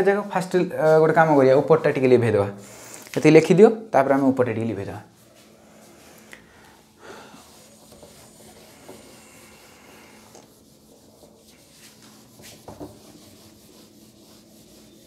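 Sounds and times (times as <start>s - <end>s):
eraser rubbing on whiteboard: 7.4s - 15.0s.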